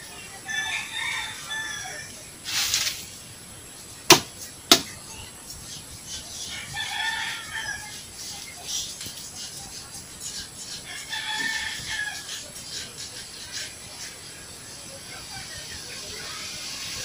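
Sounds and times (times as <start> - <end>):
rooster crowing: 0.3 - 2.1, 6.5 - 8.0, 10.9 - 12.4
sharp knocks of a bucket: 4.1 - 5.0.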